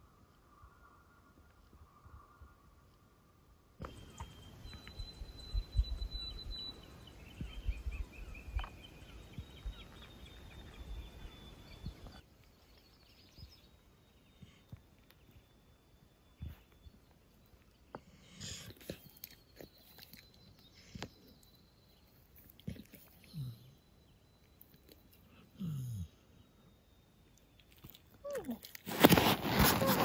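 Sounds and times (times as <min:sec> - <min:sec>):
faint birdsong: 0:00.0 - 0:30.0
wind rumble on microphone: 0:04.7 - 0:12.2.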